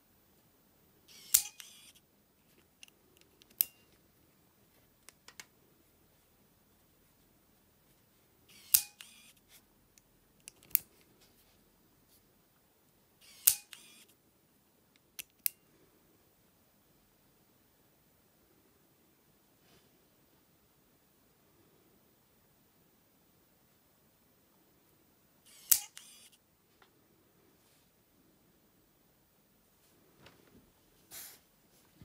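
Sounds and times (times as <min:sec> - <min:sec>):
padlock motor whirring: 0:01.1 - 0:02.0, 0:08.5 - 0:09.4, 0:13.2 - 0:14.1, 0:25.5 - 0:26.4.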